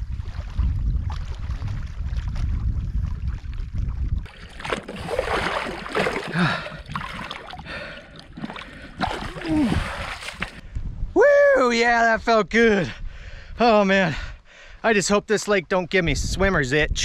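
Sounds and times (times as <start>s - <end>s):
water splashing from swimming: 4.3s - 10.6s.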